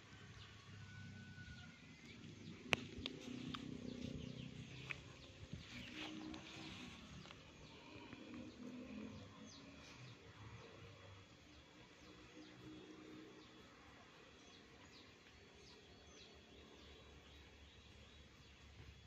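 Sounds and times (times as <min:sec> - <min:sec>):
low rumble: 0:00.4 - 0:12.1
birds chirping: 0:00.4 - 0:19.0.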